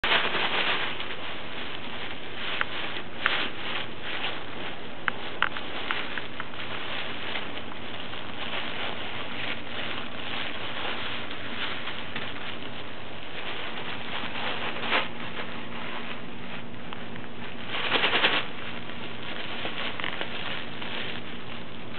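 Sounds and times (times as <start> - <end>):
bubble wrap crinkling: 0.0 - 21.9.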